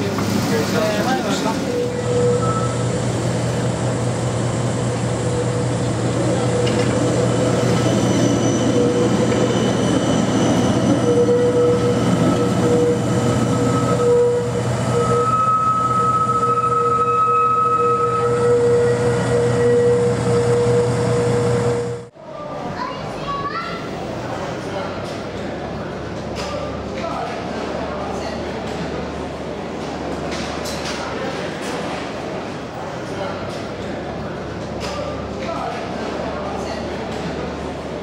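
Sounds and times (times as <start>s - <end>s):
tram rumbling on rails: 0.0s - 22.7s.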